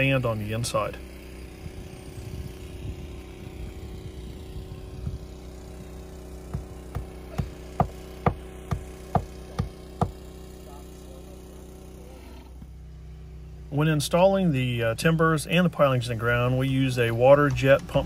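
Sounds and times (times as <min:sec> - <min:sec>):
low machine hum: 0:00.0 - 0:18.0
sharp knocks: 0:06.5 - 0:10.2.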